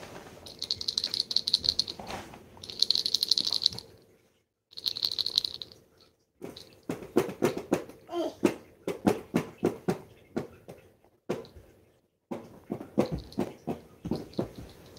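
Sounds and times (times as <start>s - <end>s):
rattle toy shaking: 0.4s - 3.9s, 4.7s - 5.8s, 6.5s - 6.9s, 13.1s - 13.5s, 14.1s - 14.9s.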